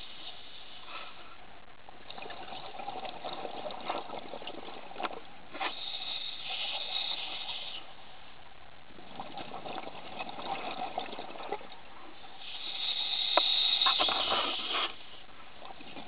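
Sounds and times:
underwater exhaled bubbles: 0:02.1 - 0:05.3, 0:08.9 - 0:12.1.

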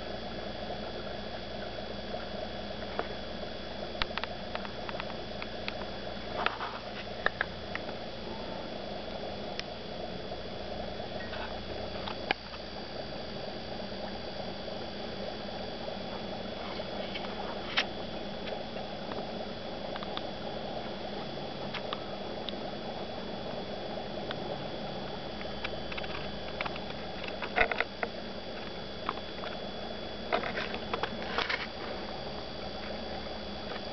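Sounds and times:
aquarium water and equipment noise: 0:00.0 - 0:33.9
faint high whines: 0:00.0 - 0:33.9
small clicks and pops: 0:01.3 - 0:03.2, 0:03.9 - 0:08.0, 0:11.2 - 0:12.7, 0:17.0 - 0:20.9, 0:21.6 - 0:22.6, 0:25.4 - 0:29.6, 0:30.3 - 0:31.8.

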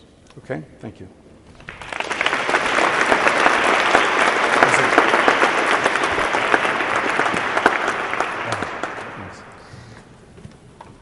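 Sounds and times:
audience applauding: 0:01.5 - 0:10.1.

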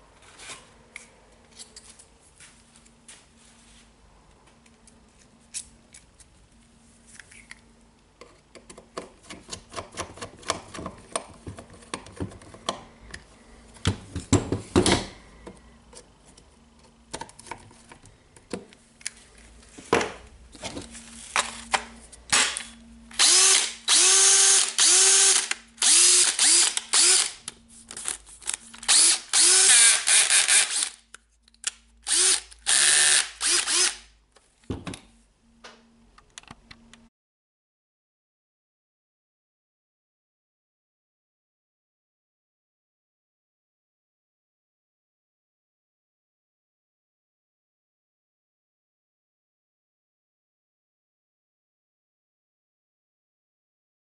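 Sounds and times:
cordless drill motor spinning: 0:23.1 - 0:27.5, 0:28.5 - 0:31.0, 0:32.1 - 0:34.0.

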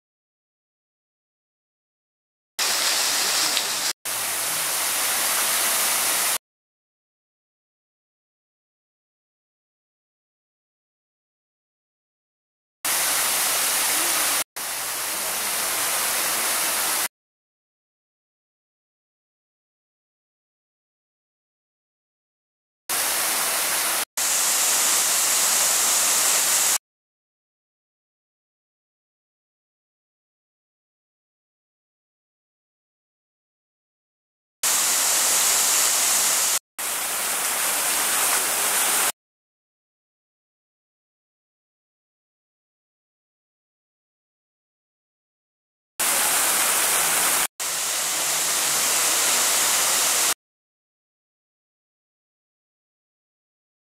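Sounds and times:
fountain water cascading: 0:02.6 - 0:06.4, 0:12.9 - 0:17.1, 0:22.9 - 0:26.8, 0:34.6 - 0:39.1, 0:46.0 - 0:50.4.

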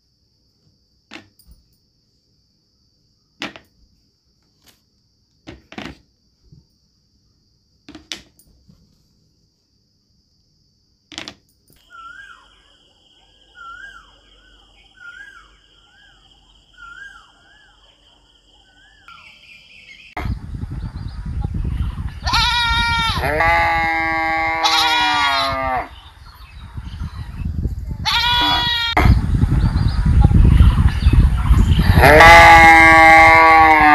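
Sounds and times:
goats bleating: 0:22.2 - 0:25.9, 0:28.0 - 0:29.0.

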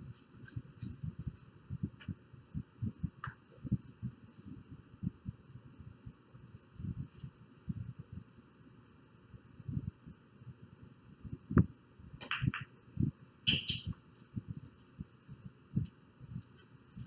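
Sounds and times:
billiard balls clicking together: 0:12.2 - 0:12.7.

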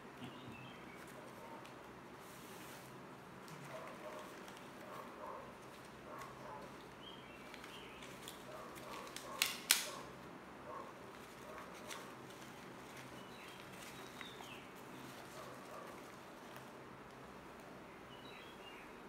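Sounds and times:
paper and foil wrapping crinkling: 0:03.4 - 0:10.0, 0:11.0 - 0:16.7.

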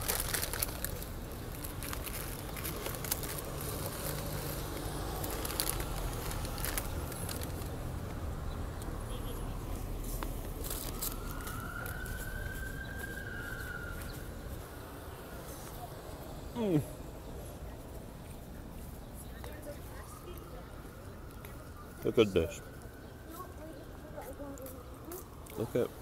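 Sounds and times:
paper crinkling: 0:00.0 - 0:07.8, 0:10.1 - 0:14.2
low street rumble: 0:00.0 - 0:26.0.

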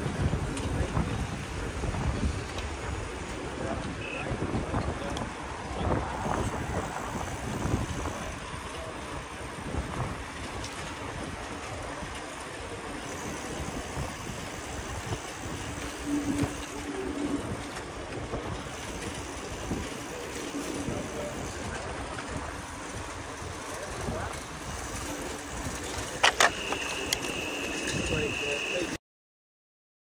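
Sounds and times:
wind buffeting microphone: 0:00.0 - 0:26.3
bicycle riding rumble: 0:00.0 - 0:29.0.

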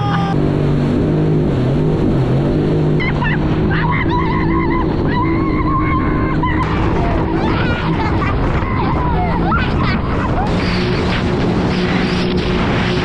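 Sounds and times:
jet ski engine running: 0:00.0 - 0:13.0
wind and water rushing: 0:00.0 - 0:13.0.

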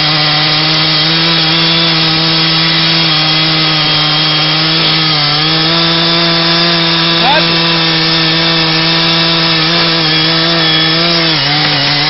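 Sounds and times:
chainsaw cutting tree trunk: 0:00.0 - 0:12.0.

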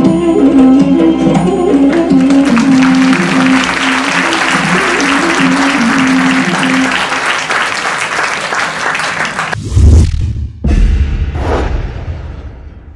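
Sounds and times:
dance music: 0:00.0 - 0:07.1
audience applauding: 0:01.9 - 0:09.6
low boom: 0:09.6 - 0:12.9.

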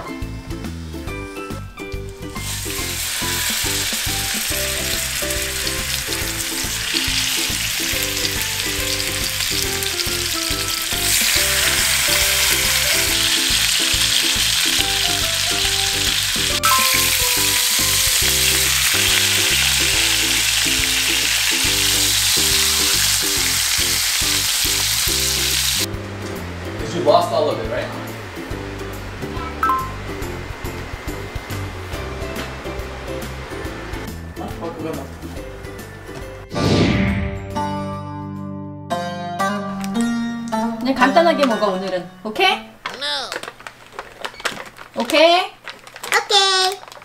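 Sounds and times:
steaks sizzling in a frying pan: 0:02.4 - 0:25.9
background music with bouncing bass: 0:25.0 - 0:30.7.

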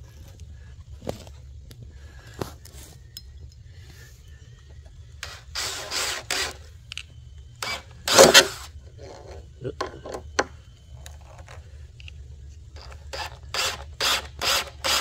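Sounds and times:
cordless drill driving screw into wood: 0:05.2 - 0:06.6, 0:07.6 - 0:08.7, 0:12.8 - 0:15.0.

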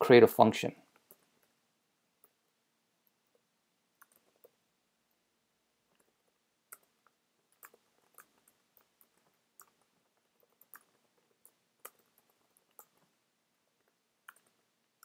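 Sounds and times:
keyboard typing: 0:04.0 - 0:04.6, 0:06.0 - 0:13.2, 0:13.8 - 0:14.7.

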